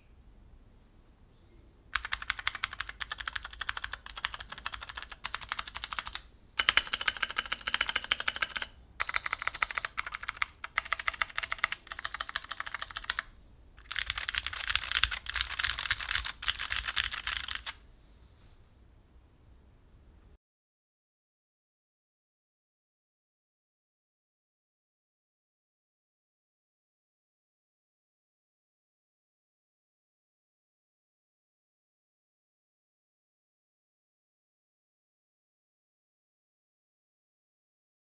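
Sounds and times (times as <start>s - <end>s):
mechanical keyboard typing: 2.0s - 17.8s.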